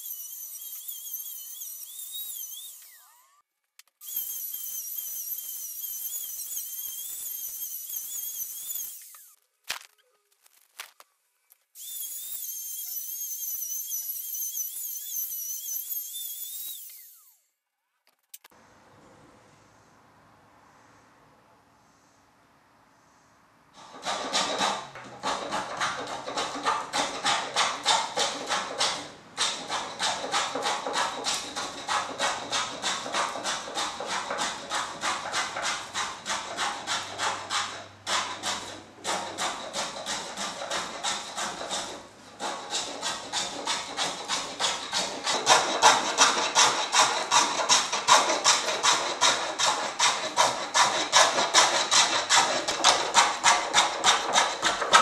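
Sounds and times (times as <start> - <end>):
router whining cutting wood: 0.0 - 3.4, 4.0 - 9.4, 11.8 - 17.4
hand tool scraping wood: 23.8 - 55.0.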